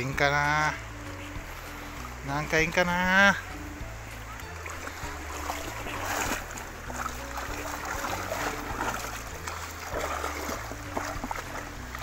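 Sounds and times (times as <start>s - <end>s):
background music: 0.0s - 12.0s
net splashing through vegetation: 4.0s - 12.0s.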